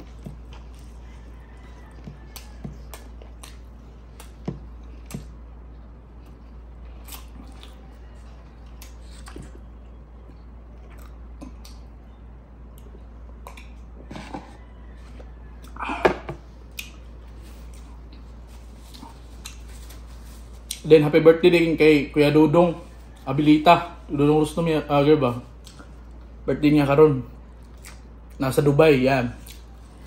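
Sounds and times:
person chewing food: 0:00.0 - 0:20.8, 0:25.6 - 0:26.4, 0:27.5 - 0:28.4.

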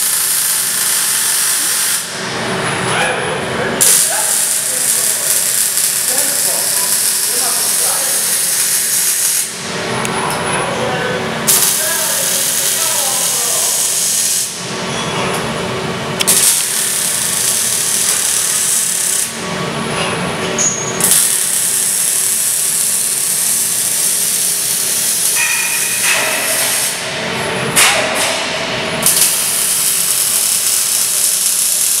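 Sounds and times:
welding arc crackling hiss: 0:00.0 - 0:02.3, 0:03.8 - 0:09.7, 0:11.5 - 0:14.7, 0:16.2 - 0:19.4, 0:21.0 - 0:27.2, 0:28.4 - 0:32.0.

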